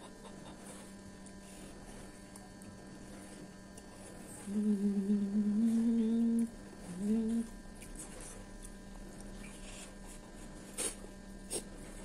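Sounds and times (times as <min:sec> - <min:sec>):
woman humming while chewing: 0:03.5 - 0:10.1.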